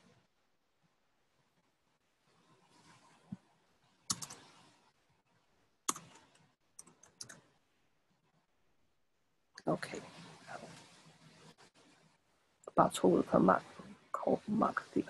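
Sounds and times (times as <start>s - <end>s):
keyboard keystrokes: 4.1s - 4.4s, 5.9s - 7.4s.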